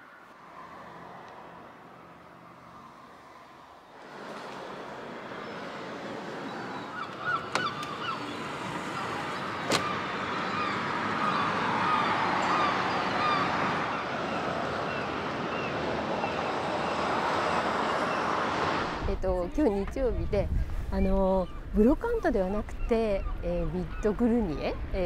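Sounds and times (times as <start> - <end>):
gulls calling: 4.0 - 18.6
strong wind rushing: 13.0 - 21.8.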